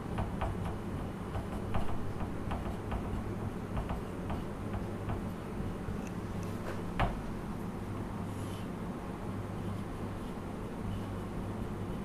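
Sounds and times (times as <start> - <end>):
marker pen scratching on whiteboard: 0.4 - 5.2.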